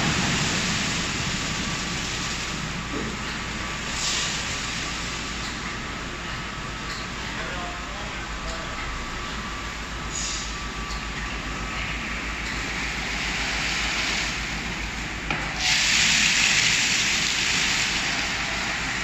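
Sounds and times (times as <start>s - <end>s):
car wash machine rushing: 0.0s - 5.3s, 11.9s - 19.0s.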